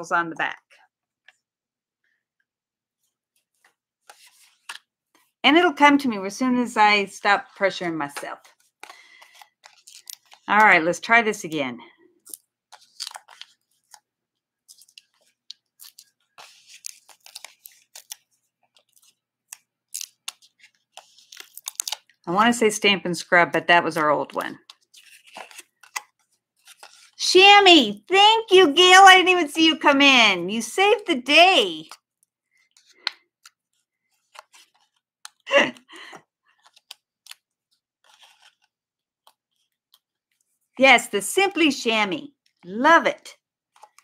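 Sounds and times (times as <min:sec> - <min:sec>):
hands handling craft supplies: 0:00.3 - 0:44.0
light clicks and rubs: 0:03.0 - 0:05.3, 0:36.5 - 0:40.8.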